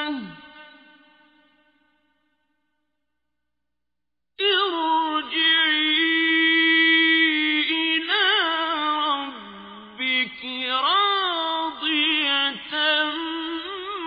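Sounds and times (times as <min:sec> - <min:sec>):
person chanting melodically: 0:00.0 - 0:01.5, 0:04.4 - 0:14.0.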